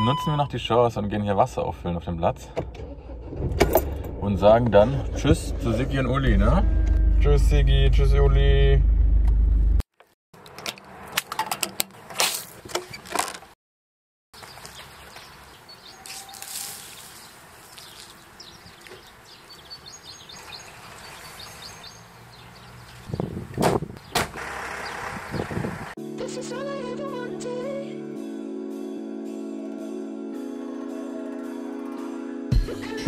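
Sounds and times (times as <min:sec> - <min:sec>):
birds chirping: 0:14.4 - 0:25.9.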